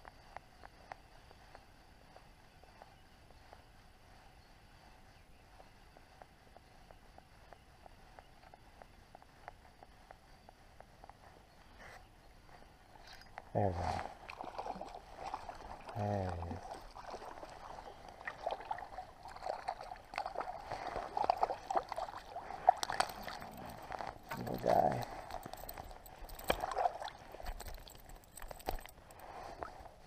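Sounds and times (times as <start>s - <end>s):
fish splashing: 14.0s - 24.4s, 25.2s - 28.9s.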